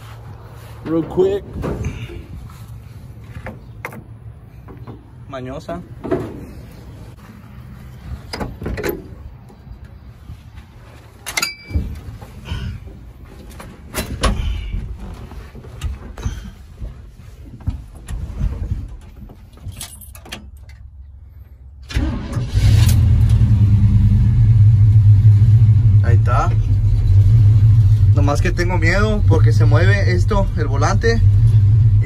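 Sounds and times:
clicks and knocks entering cab: 3.3 - 5.1, 8.3 - 9.6
engine cranking and starting: 21.8 - 24.0.

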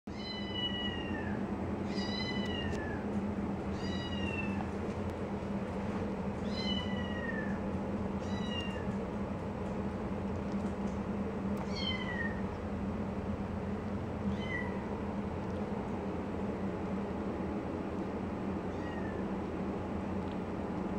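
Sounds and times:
kitten mewing: 11.6 - 12.4.

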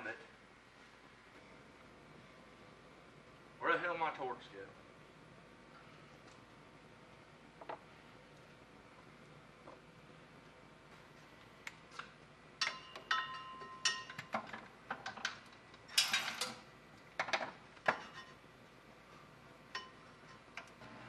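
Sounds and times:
metal tools clinking: 12.6 - 14.3, 15.9 - 16.6.

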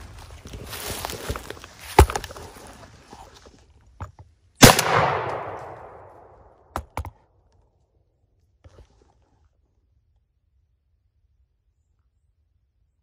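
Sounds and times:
gunshot with echo: 4.6 - 6.6.

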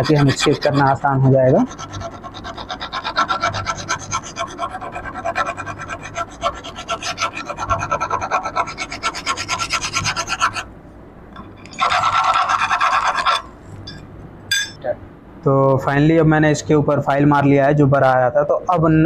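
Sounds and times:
hand file rasping on metal: 0.0 - 10.7, 11.6 - 14.0
steady metal scrape: 11.4 - 14.8.

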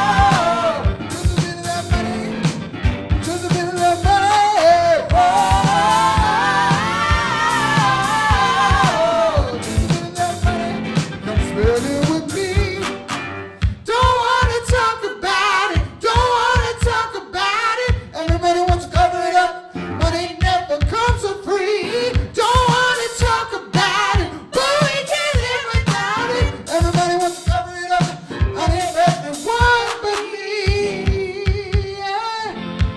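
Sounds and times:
person singing: 0.0 - 2.6, 3.2 - 13.1, 13.8 - 32.7
low drum beat: 0.0 - 12.8
electric bass: 0.0 - 13.8
keyboard: 0.0 - 13.8, 18.8 - 32.9
electric guitar: 0.0 - 16.8, 17.9 - 32.9.

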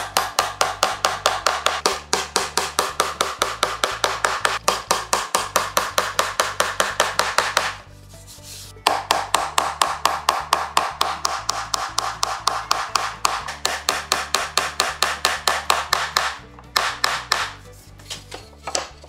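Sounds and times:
hammer tapping nails into wood: 0.0 - 7.8, 8.8 - 17.6, 18.3 - 19.0.

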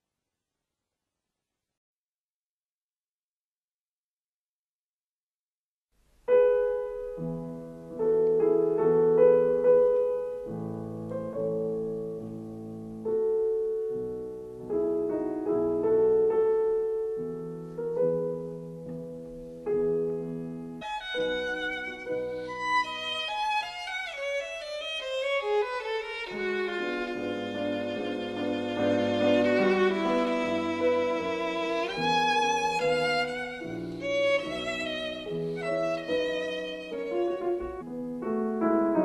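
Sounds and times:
piano chords: 6.3 - 39.0
violin playing: 20.8 - 37.8.

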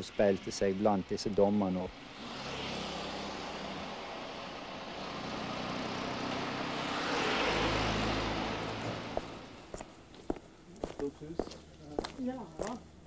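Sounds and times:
car driving past: 0.0 - 9.9.

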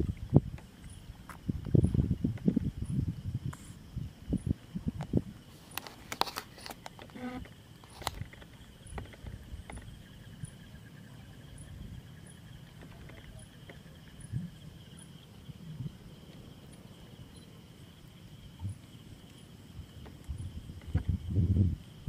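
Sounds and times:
insects trilling: 0.0 - 22.0.

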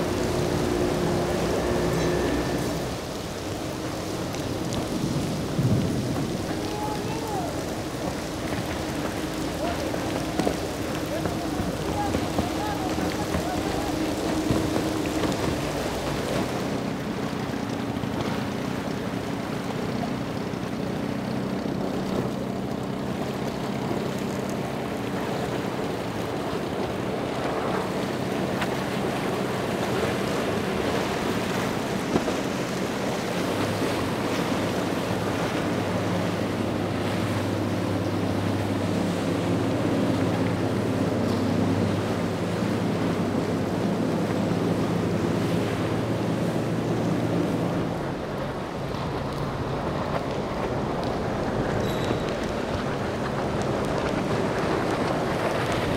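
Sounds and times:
wind buffeting microphone: 0.0 - 19.9
bow spray and wake rushing: 0.0 - 55.9
motorboat engines running: 0.0 - 55.9.

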